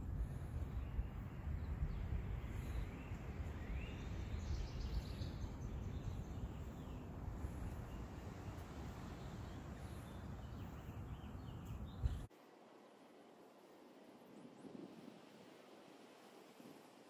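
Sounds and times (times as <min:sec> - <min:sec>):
low wind rumble: 0:00.0 - 0:17.0
faint bird chirps: 0:00.2 - 0:12.3.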